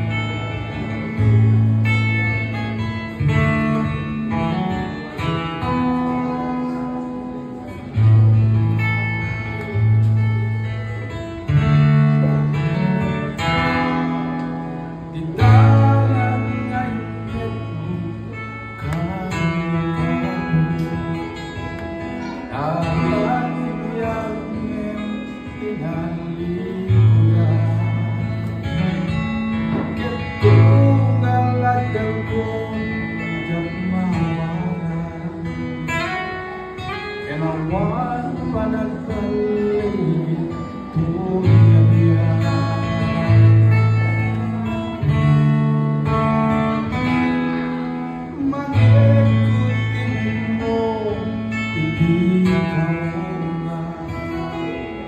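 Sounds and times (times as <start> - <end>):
acoustic guitar strummed and picked: 0.0 - 55.0
man singing into a microphone: 0.0 - 55.0.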